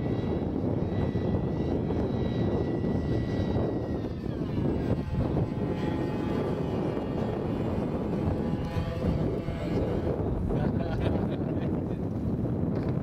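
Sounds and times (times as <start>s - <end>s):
model jet high whine: 0.0s - 13.0s
wind rumble on microphone: 0.0s - 13.0s.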